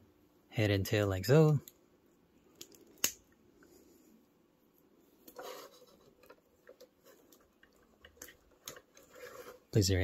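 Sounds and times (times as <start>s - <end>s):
plastic toy pieces scraping: 5.3s - 9.7s.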